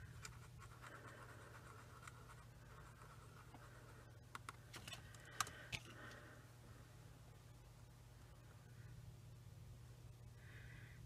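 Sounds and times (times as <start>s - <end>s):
paintbrush scratching in paint: 0.0s - 4.0s
low steady hum: 0.0s - 11.0s.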